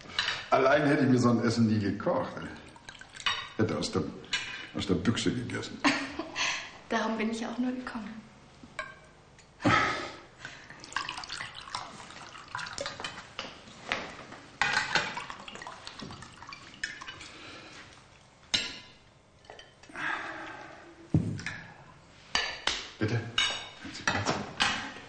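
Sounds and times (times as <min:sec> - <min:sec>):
wine pouring into glasses: 0:02.2 - 0:03.9, 0:10.7 - 0:13.2, 0:14.6 - 0:18.1
plates and glass clinking: 0:14.6 - 0:17.3, 0:18.5 - 0:19.9, 0:23.4 - 0:24.8.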